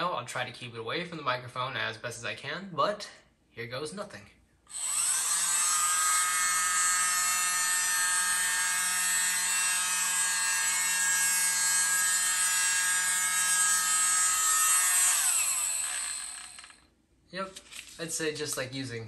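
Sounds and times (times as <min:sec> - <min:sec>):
small electric duster whining: 0:04.7 - 0:16.8.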